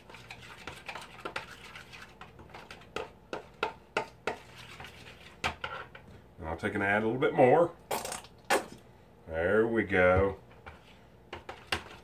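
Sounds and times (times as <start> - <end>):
fork scraping plastic bowl: 0.0 - 5.9, 10.6 - 12.0.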